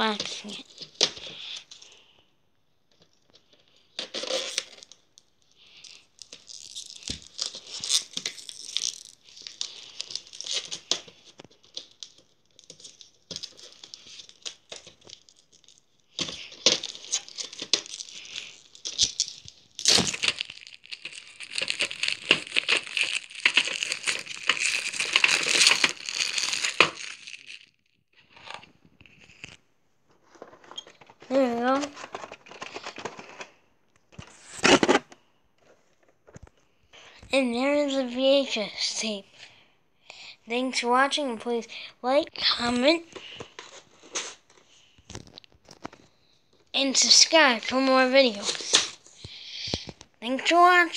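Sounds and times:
packaging crinkling and tearing: 0:03.3 - 0:29.6, 0:30.2 - 0:33.6, 0:43.0 - 0:50.1.

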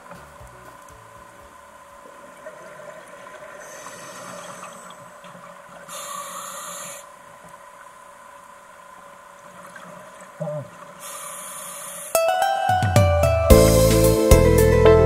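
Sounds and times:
underwater hum: 0:00.8 - 0:12.2.

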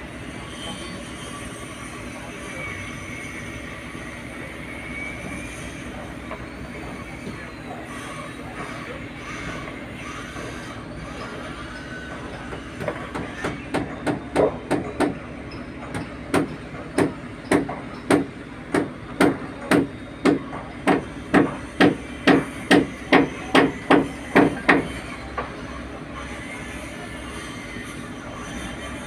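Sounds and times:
hammer blows ringing: 0:15.9 - 0:24.9.

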